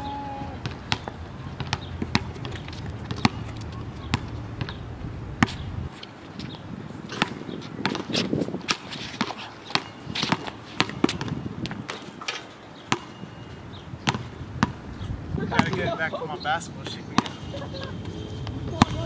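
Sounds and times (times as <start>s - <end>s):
basketball bouncing on hard court: 0.6s - 4.8s, 7.1s - 12.1s, 12.9s - 13.4s, 14.0s - 14.8s, 18.7s - 19.0s.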